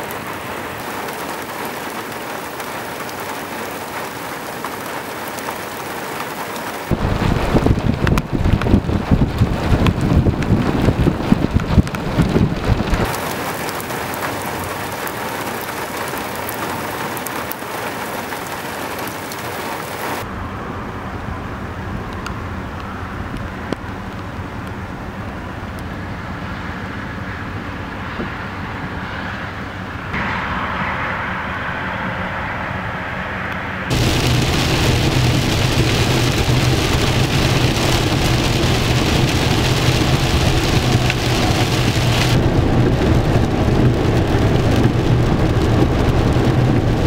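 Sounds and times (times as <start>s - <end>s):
heavy rain: 0.0s - 20.4s, 33.8s - 47.0s
low thunder rumble: 6.8s - 16.5s, 33.8s - 47.0s.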